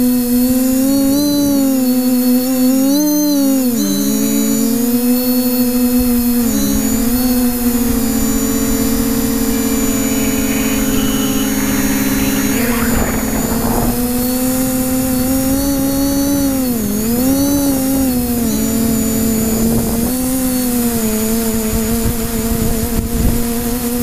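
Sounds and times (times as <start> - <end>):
drone motors whining: 5.8 - 19.7
wind rumble: 7.4 - 16.2.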